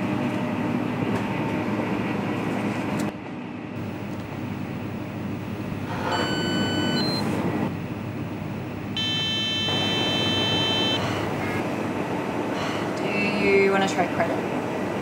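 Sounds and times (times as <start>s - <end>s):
steady background hum: 0.0s - 15.0s
long electronic tone: 3.8s - 11.6s
payment terminal beep: 5.8s - 8.3s, 8.9s - 11.6s.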